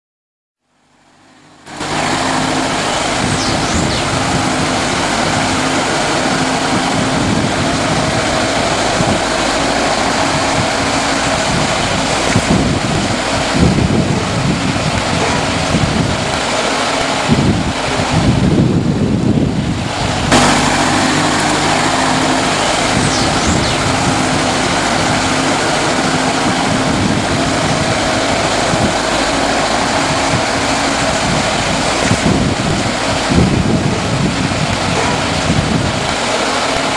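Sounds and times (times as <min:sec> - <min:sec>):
forklift engine running: 0:01.0 - 0:36.9
loud hiss: 0:01.4 - 0:36.9
wind buffeting microphone: 0:01.7 - 0:36.9.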